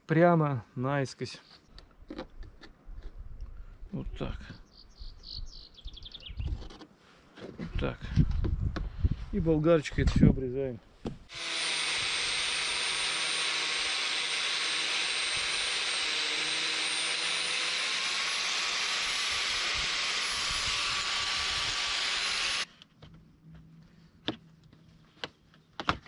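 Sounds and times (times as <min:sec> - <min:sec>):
angle grinder cutting rubber: 0:11.3 - 0:22.7.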